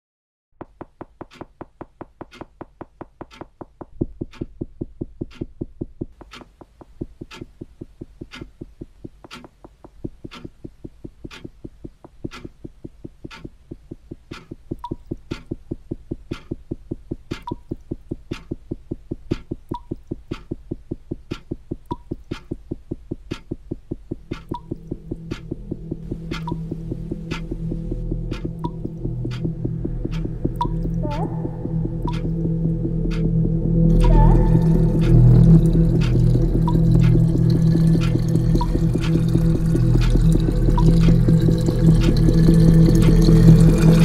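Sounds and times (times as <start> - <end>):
sharp ticks: 0.8 - 44.0
low throbbing pulse: 14.7 - 44.0.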